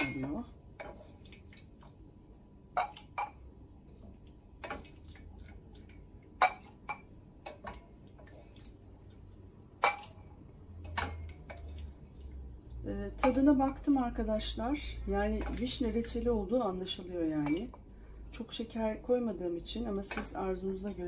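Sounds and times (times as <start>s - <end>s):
wooden spoon clinking on metal pot: 10.8s - 11.7s, 13.1s - 13.6s, 19.9s - 21.0s.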